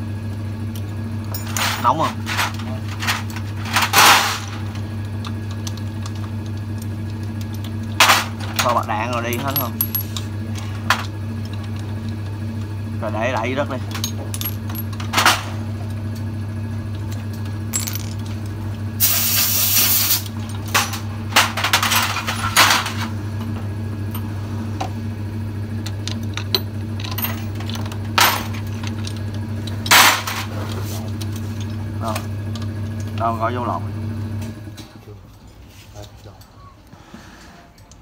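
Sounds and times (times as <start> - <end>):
steady low hum: 0.0 - 38.0
metal parts and tools clinking: 1.3 - 4.7, 5.3 - 12.2, 13.8 - 15.5, 17.0 - 18.5, 19.4 - 23.1, 25.8 - 31.8
short hiss: 19.0 - 20.2.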